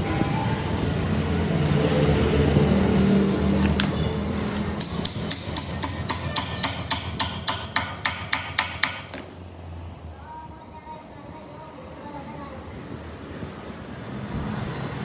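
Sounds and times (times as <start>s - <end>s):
hammer striking metal: 4.8s - 9.2s.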